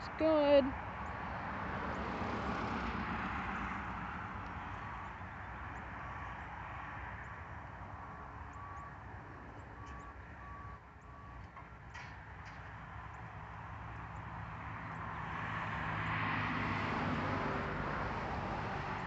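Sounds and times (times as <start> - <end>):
backup alarm beeps: 8.1 - 9.1, 9.7 - 11.4.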